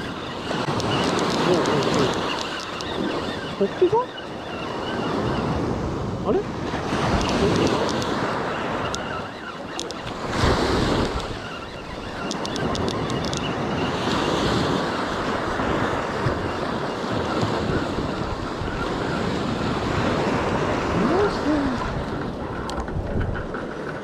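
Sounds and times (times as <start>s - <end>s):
small waves washing up a beach: 0.0s - 24.0s
wind buffeting microphone: 0.0s - 24.0s
light ticks: 12.2s - 13.5s.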